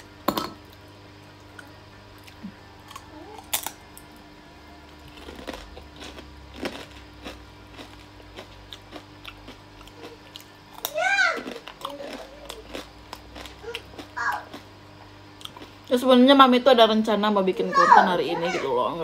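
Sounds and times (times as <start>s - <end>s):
cracker crunching while chewing: 0.8s - 4.2s, 4.9s - 15.9s.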